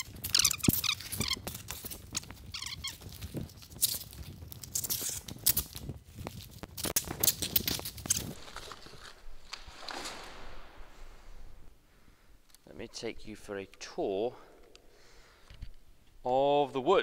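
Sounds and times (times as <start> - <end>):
short high squeaks: 0.0 - 4.0
canvas tearing and scraping: 0.0 - 10.7.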